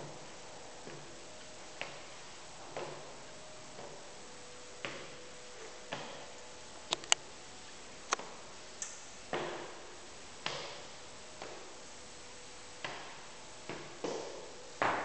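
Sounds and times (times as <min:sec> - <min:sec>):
footsteps on hard floor: 0:00.0 - 0:04.1
faint steady hum: 0:00.0 - 0:15.0.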